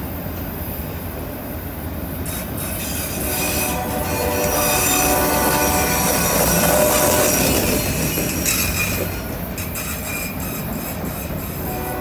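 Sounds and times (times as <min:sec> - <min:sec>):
rumble of rolling freight cars: 0:00.0 - 0:12.0
train wheels squealing: 0:02.2 - 0:11.9.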